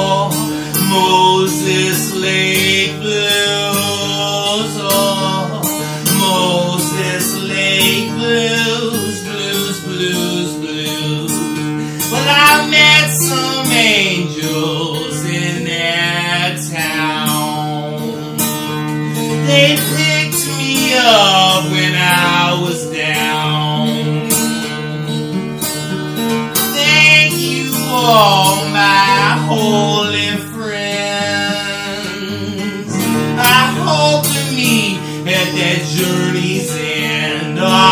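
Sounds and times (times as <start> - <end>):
man singing: 0.0 - 37.9
strummed acoustic guitar: 0.0 - 37.9.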